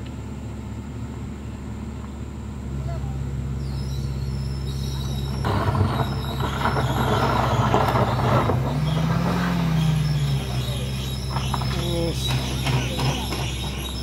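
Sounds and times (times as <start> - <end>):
car engine pulling uphill: 0.0 - 14.0
tyres hissing on gravel: 3.7 - 14.0.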